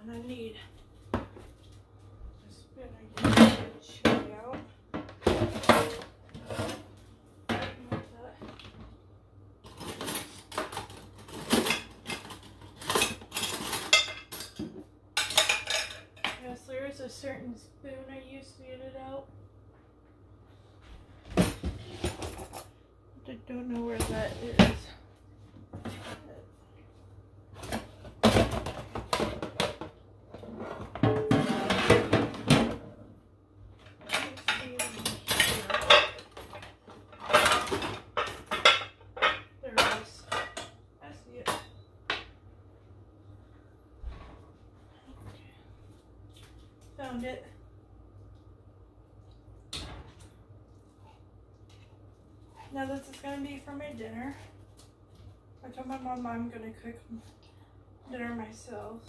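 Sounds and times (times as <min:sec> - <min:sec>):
metal cutlery clattering: 0:09.7 - 0:14.6, 0:34.1 - 0:39.4.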